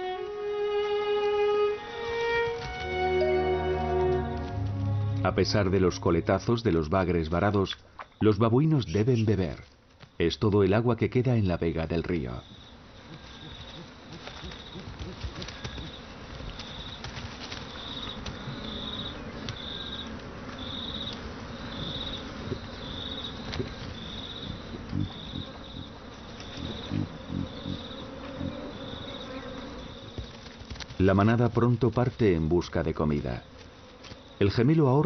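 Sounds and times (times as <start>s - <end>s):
insect buzzy calls: 12.2s - 31.5s, 32.8s - 35.0s
rustling: 12.5s - 34.4s.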